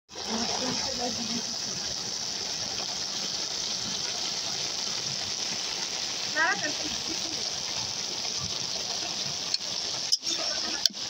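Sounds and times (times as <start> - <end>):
leafy greens sizzling in a wok: 0.1 - 11.0.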